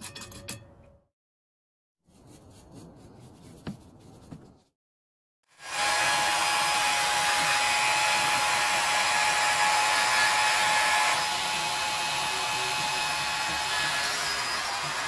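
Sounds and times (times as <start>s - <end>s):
angle grinder whine: 5.6s - 15.0s.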